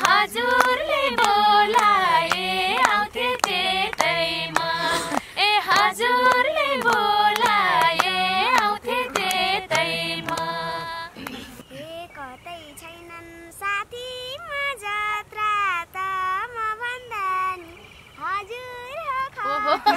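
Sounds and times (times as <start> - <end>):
hand claps: 0.0 - 11.4
women singing unaccompanied: 0.0 - 19.9.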